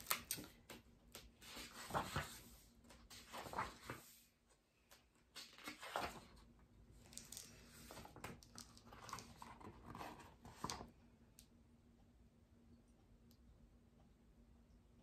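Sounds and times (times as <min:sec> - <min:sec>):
paper pages rustling: 0:00.0 - 0:10.9.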